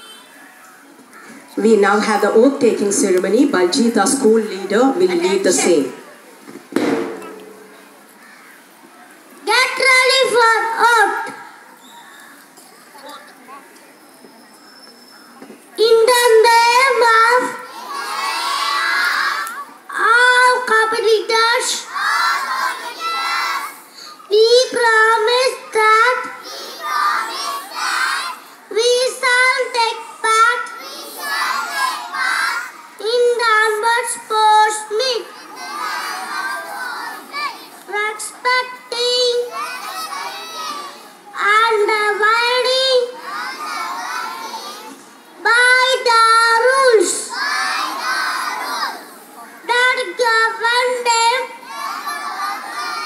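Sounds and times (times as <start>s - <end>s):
children reciting in unison: 16.2s - 41.9s, 42.5s - 45.2s, 45.8s - 53.0s.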